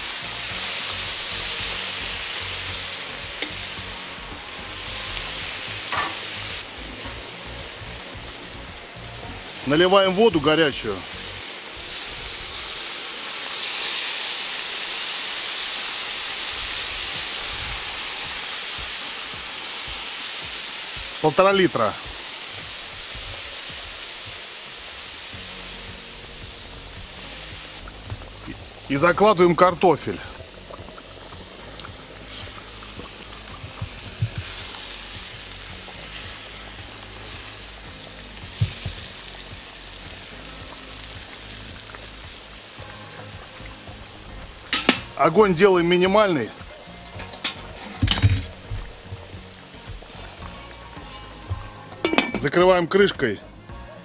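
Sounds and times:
hot fat hissing and sizzling: 0:00.0 - 0:54.0
water pouring from kettle: 0:27.8 - 0:36.8.

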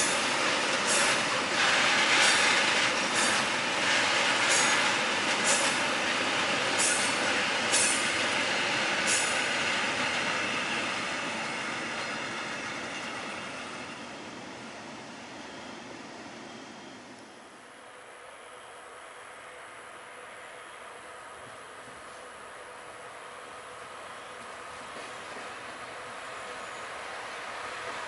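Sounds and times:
train wheels clacking over rail joints: 0:00.0 - 0:12.2
freight train rumbling: 0:00.0 - 0:28.0.

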